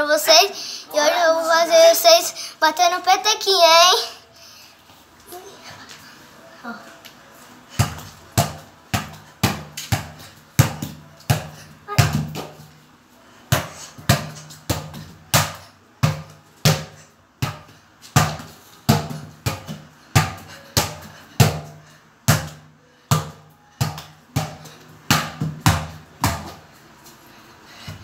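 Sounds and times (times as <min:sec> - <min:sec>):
football kicked by bare foot: 0:22.3 - 0:26.6.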